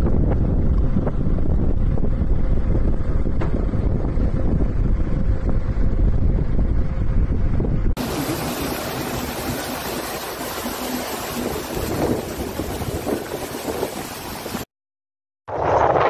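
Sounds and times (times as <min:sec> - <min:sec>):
wind buffeting microphone: 0:00.0 - 0:14.6
floodwater rushing: 0:08.0 - 0:14.7
rain: 0:08.0 - 0:14.7.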